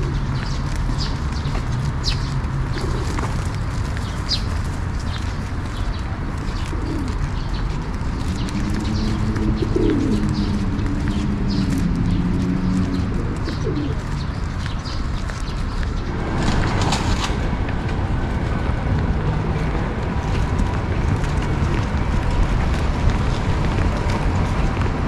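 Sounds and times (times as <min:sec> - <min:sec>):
pigeons cooing: 0:00.0 - 0:01.2, 0:02.1 - 0:04.4, 0:06.4 - 0:14.6
small birds chirping: 0:00.0 - 0:16.2.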